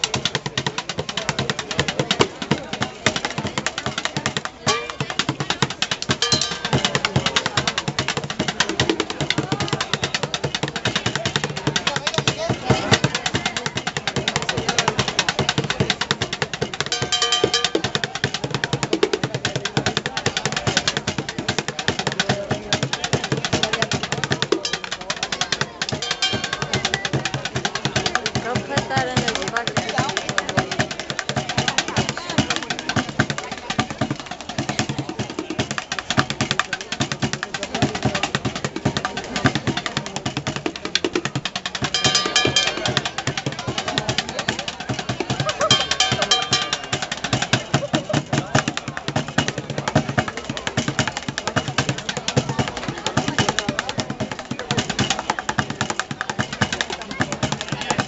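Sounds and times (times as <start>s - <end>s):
bucket drumming: 0.0s - 58.0s
ringing metallic tone: 6.2s - 6.7s, 41.9s - 43.0s.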